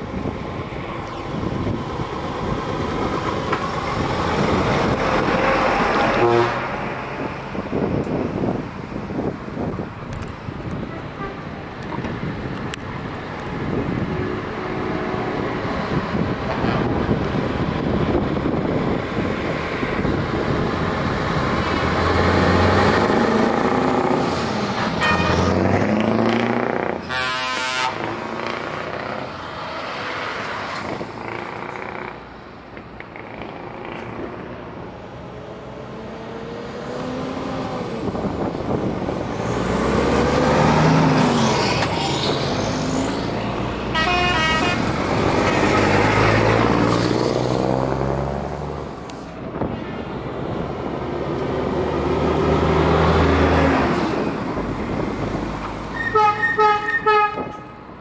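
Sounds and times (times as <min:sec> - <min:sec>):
trucks driving past: 0:00.0 - 0:58.0
truck horn blasts: 0:05.4 - 0:07.1, 0:25.0 - 0:25.6, 0:27.0 - 0:28.0, 0:43.9 - 0:45.9, 0:56.0 - 0:57.7.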